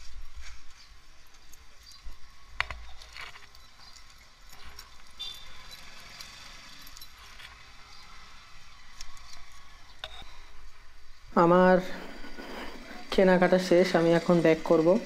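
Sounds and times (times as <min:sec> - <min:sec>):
low street rumble: 0:00.0 - 0:15.0
keys clicking in ignition: 0:02.9 - 0:07.5.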